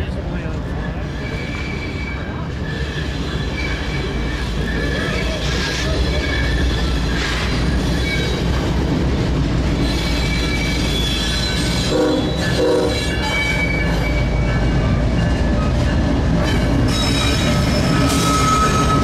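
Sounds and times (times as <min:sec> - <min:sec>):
train rumbling past: 0:00.0 - 0:19.0
wheel flange squeal: 0:00.7 - 0:08.7, 0:09.8 - 0:19.0
train horn blasts: 0:11.8 - 0:13.3.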